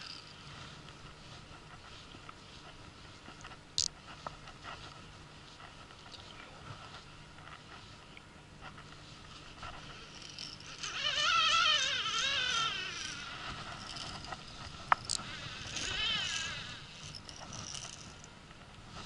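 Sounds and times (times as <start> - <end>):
fishing reel drag buzzing: 0.0 - 0.3, 9.7 - 18.3.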